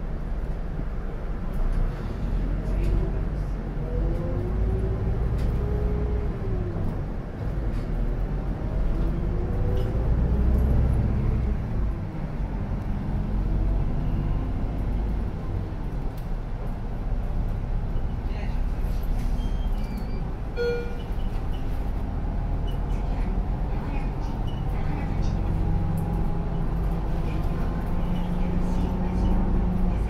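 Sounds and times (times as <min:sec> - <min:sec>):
bus engine rumble: 0:00.0 - 0:30.0.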